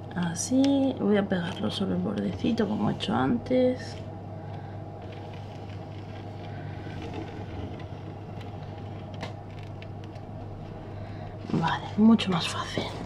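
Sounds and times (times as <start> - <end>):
low room hum: 0.0 - 13.0
tape rustling: 5.0 - 10.7.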